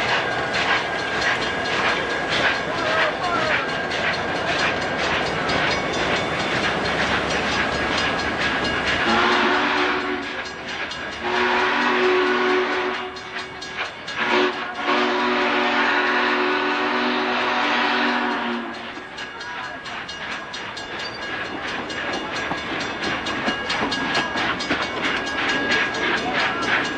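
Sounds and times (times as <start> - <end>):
train cars clattering over rails: 0.0 - 26.9
locomotive horn blasts: 9.0 - 10.4, 11.2 - 13.2, 14.2 - 18.9.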